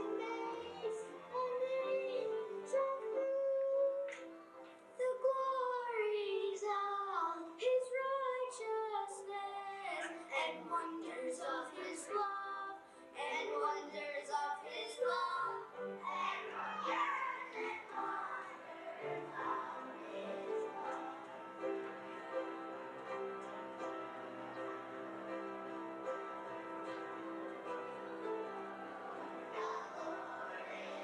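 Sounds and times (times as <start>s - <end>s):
children singing into microphones: 0.0s - 4.2s, 5.0s - 21.9s, 28.7s - 31.0s
instrumental accompaniment: 15.7s - 31.0s.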